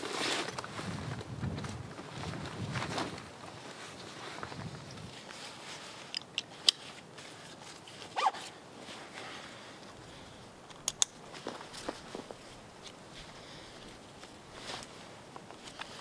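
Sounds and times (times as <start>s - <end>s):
backpack buckles clicking: 8.1s - 8.5s
webbing zipping through buckle: 8.1s - 8.5s.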